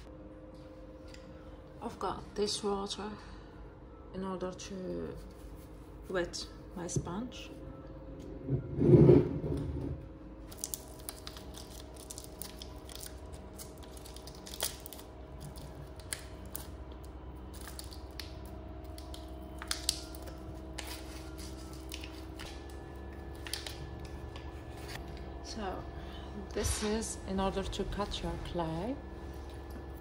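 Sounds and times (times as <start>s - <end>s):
faint hum: 0.0s - 30.0s
plastic packet crinkling: 10.5s - 16.8s.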